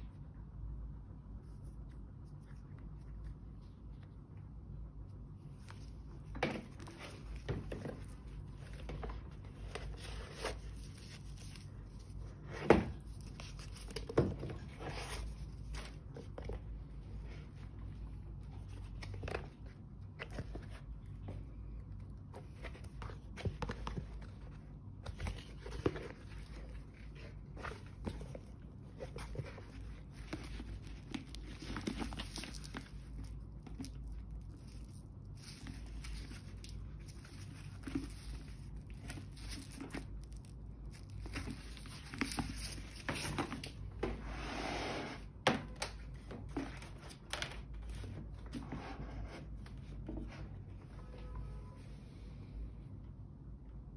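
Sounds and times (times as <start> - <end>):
paper and leather rustling: 5.4 - 44.9
handbag being handled: 22.3 - 44.1.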